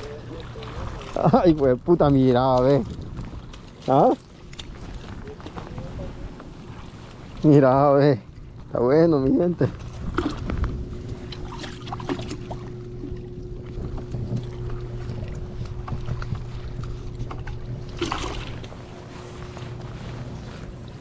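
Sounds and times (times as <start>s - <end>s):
low motor hum with whine: 0.0s - 21.0s
clothing rubbing on microphone: 18.6s - 21.0s.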